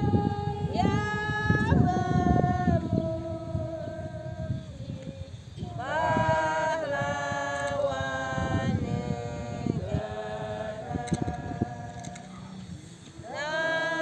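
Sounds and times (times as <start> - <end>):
unaccompanied group singing: 0.0 - 14.0.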